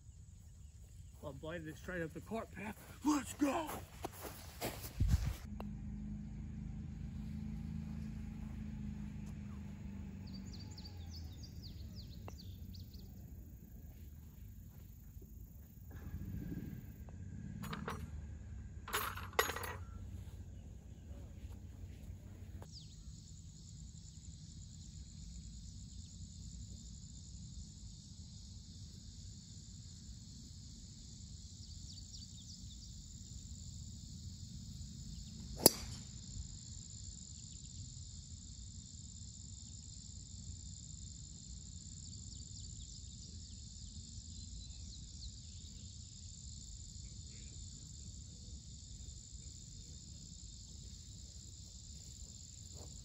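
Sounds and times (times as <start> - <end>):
insects chirring: 0.0 - 5.5, 7.0 - 18.8, 19.5 - 53.0
golf club striking ball: 35.5 - 36.4.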